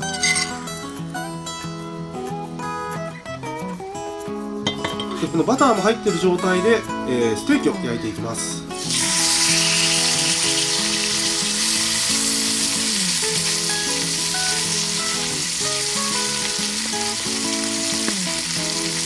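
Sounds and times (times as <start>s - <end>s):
steak sizzling in a skillet: 8.7s - 19.0s.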